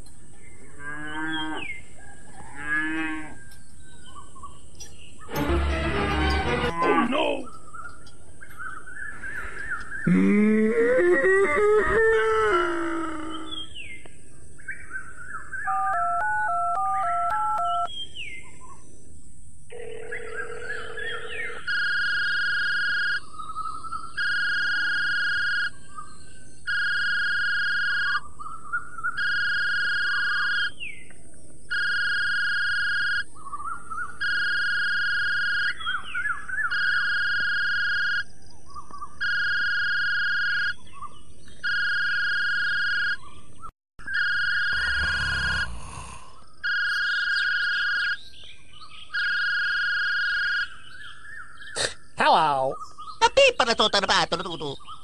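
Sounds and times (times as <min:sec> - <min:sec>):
birds chirping: 0:00.0 - 0:21.9, 0:23.2 - 0:24.4, 0:35.6 - 0:37.2, 0:40.7 - 0:49.6, 0:50.3 - 0:55.0.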